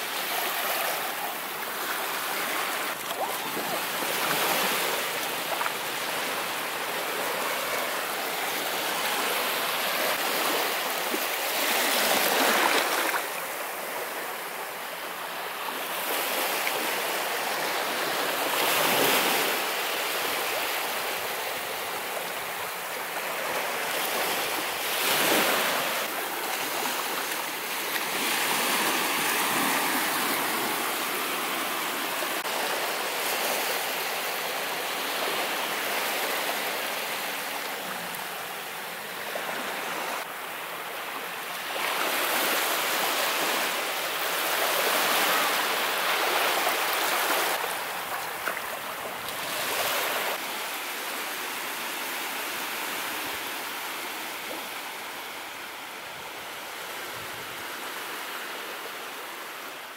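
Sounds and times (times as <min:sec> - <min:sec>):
ocean waves breaking: 0:00.0 - 0:14.8, 0:15.7 - 0:51.2.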